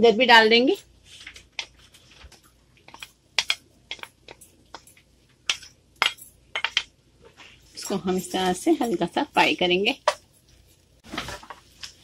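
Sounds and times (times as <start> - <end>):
wooden spatula tapping a plate: 2.9 - 4.9.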